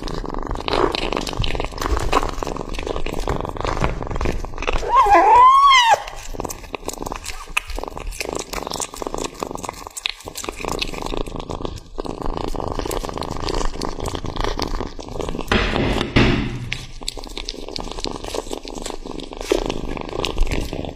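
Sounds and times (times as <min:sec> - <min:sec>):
kitten chewing raw meat: 0:00.0 - 0:20.9
loud noisy sound: 0:15.5 - 0:16.9.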